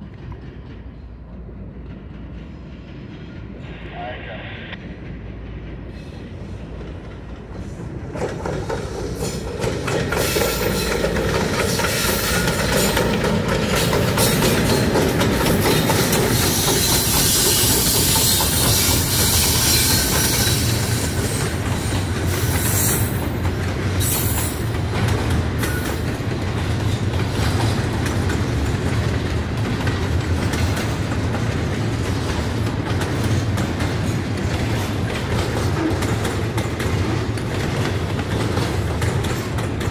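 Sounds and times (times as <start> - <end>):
train wheel clatter on rails: 0.0 - 3.6, 5.0 - 39.9
diesel locomotives passing: 0.0 - 39.9.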